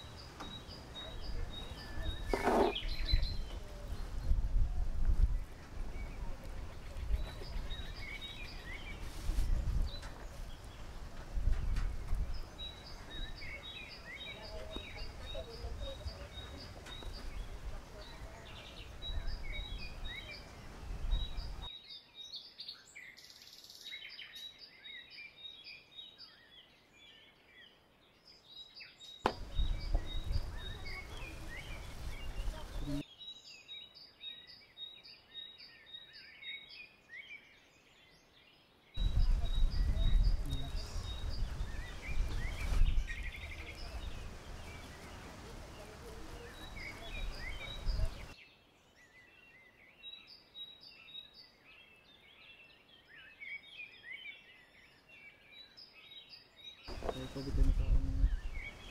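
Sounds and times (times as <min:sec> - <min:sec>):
birds chirping and calling: 0:00.0 - 0:04.4, 0:05.2 - 0:21.7, 0:28.7 - 0:33.3, 0:39.0 - 0:58.9.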